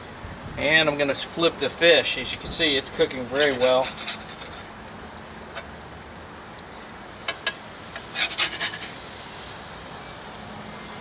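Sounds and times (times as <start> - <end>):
steady background hiss: 0.0 - 11.0
metal utensil scraping pan: 3.0 - 4.7, 7.3 - 9.0.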